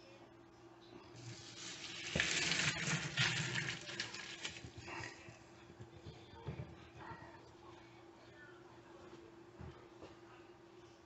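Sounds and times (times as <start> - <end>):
water pouring into colander: 1.2 - 5.2.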